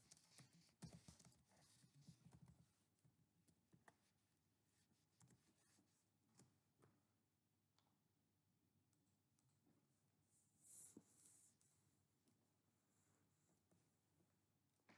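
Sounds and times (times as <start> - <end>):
faint keyboard typing: 0.0 - 2.7.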